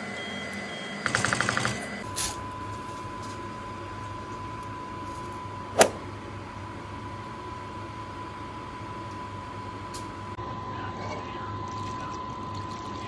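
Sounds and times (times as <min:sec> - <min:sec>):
low hum: 0:02.0 - 0:09.8
water boiling in a pot: 0:11.5 - 0:13.0.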